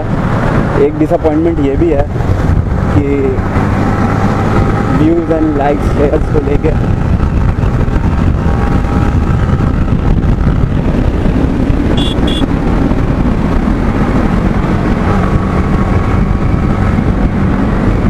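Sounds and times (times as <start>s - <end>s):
wind rush over microphone: 0.0s - 18.0s
motorcycle engine running: 2.5s - 18.0s
short high beeps: 12.0s - 12.5s.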